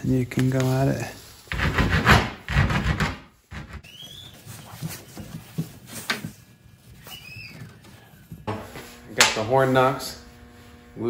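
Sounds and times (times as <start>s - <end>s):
file scraping wood: 1.5s - 3.8s.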